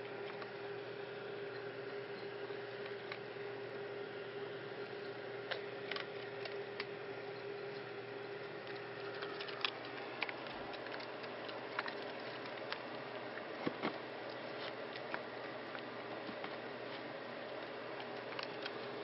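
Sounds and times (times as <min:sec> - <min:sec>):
background hum: 0:00.0 - 0:19.0.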